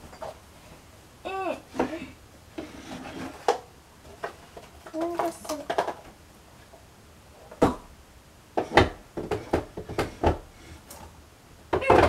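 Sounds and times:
objects knocking and clattering: 0.0 - 0.4, 2.6 - 6.2, 8.6 - 11.1, 11.7 - 12.0.

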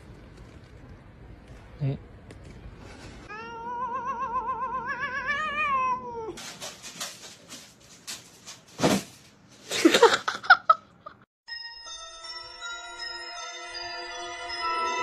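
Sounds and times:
cat yowling: 3.3 - 6.4
scratching in cat litter: 6.3 - 9.8.

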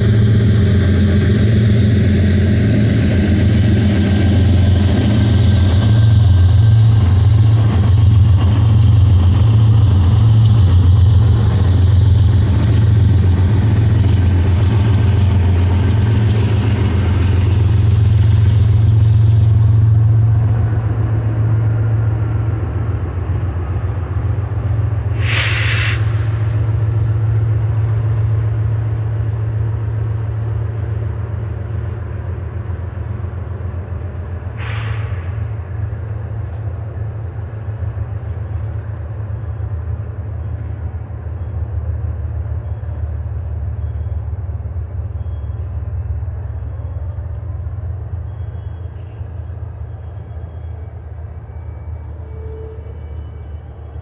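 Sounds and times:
diesel locomotives droning: 0.0 - 54.0
short sharp hiss: 25.2 - 26.4, 34.6 - 35.6.

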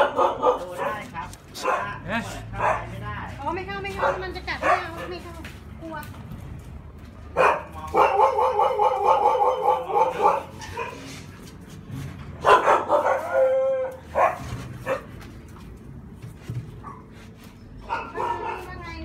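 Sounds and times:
dogs barking: 0.0 - 3.2, 3.8 - 5.2, 7.3 - 11.3, 12.4 - 15.2, 17.8 - 19.0
dogs howling: 12.5 - 14.3.

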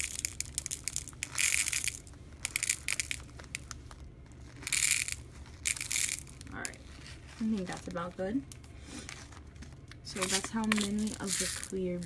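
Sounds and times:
plastic beads rattling into cup: 0.0 - 6.8, 10.1 - 12.0.

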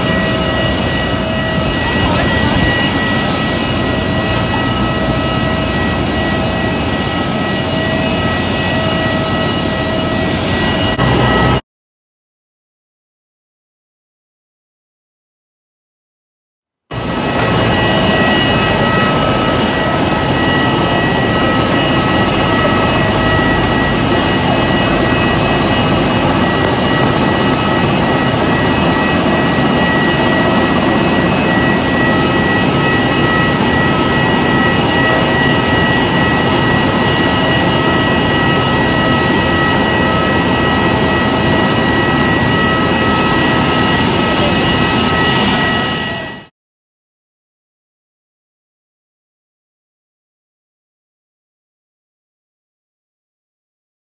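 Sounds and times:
high jet whine: 0.0 - 11.6, 16.9 - 46.5
jet engine roar: 0.0 - 11.6, 16.9 - 46.5.

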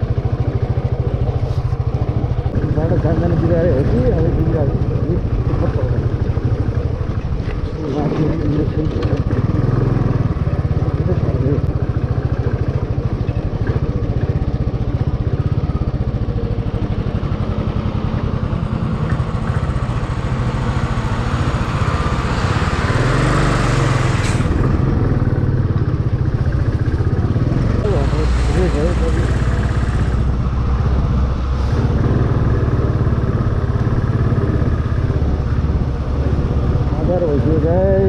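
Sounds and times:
motorcycle engine running: 0.0 - 38.0
road and wind noise: 0.0 - 38.0
large truck passing: 17.8 - 26.1, 27.0 - 38.0.

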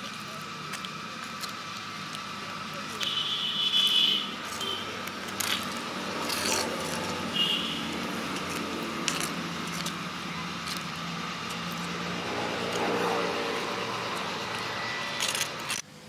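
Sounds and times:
spoon scraping clay pot: 4.4 - 10.0.

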